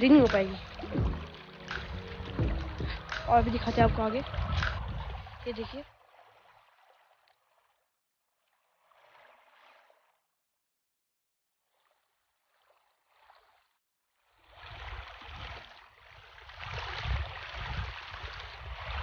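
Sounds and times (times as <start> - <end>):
wind buffeting the microphone: 1.8 - 5.8, 16.6 - 19.0.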